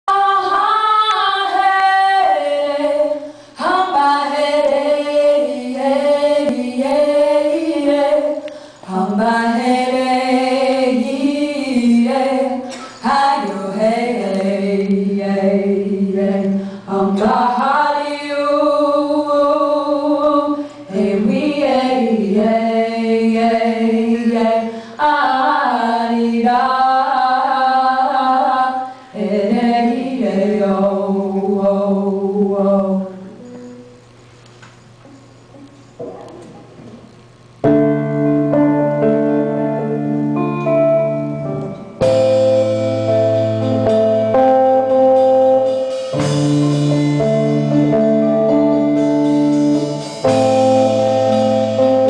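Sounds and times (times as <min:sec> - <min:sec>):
women singing in harmony: 0:00.1 - 0:33.6.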